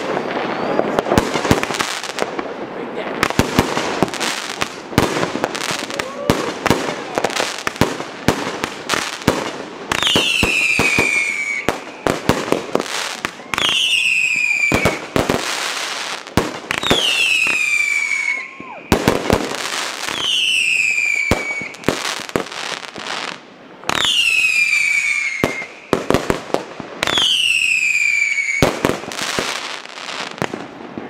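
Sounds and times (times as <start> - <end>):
falling firework whistles: 0.0 - 1.8, 9.9 - 23.3, 23.9 - 26.2, 27.0 - 30.4
fireworks bangs and crackling: 0.0 - 31.0.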